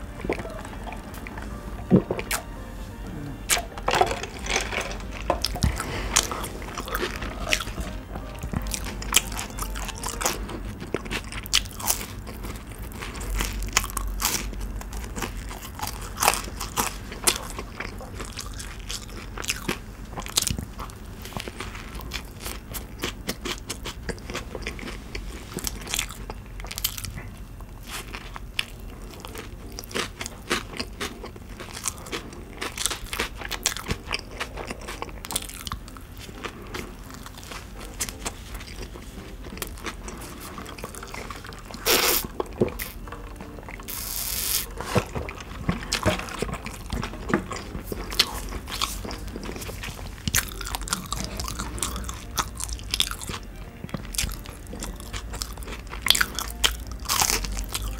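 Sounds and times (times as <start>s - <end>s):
chewing crispy food: 0.0s - 57.9s
wet mouth sounds: 38.6s - 43.0s.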